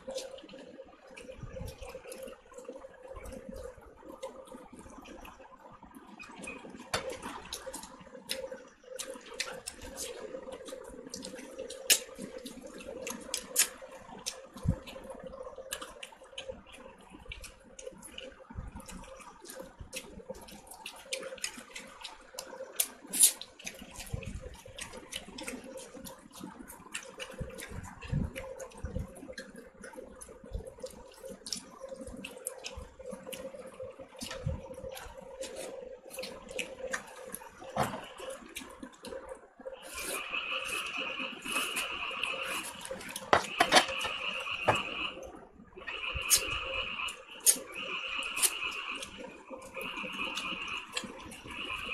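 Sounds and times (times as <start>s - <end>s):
wet crackling clicks and smacks: 0.0s - 39.5s.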